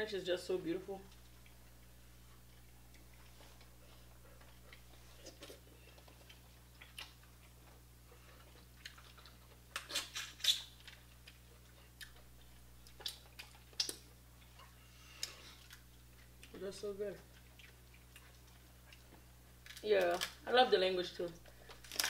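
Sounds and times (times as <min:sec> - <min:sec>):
chewing: 0:01.1 - 0:20.4
crab shells cracking: 0:12.0 - 0:14.1, 0:19.6 - 0:20.4, 0:21.6 - 0:22.0.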